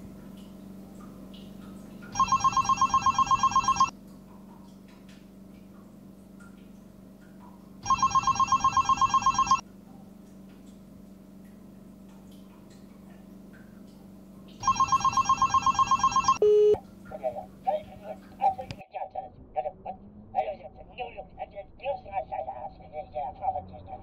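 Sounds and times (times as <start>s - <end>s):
telephone bell ringing: 2.2s - 3.9s, 7.8s - 9.6s, 14.6s - 16.8s
short steady beep: 15.5s - 16.8s.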